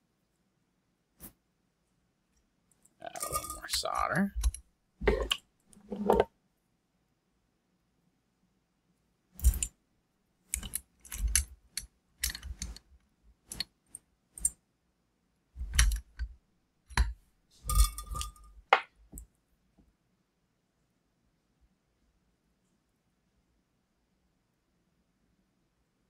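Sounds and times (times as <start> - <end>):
metal parts clicking against vise: 10.5 - 12.8.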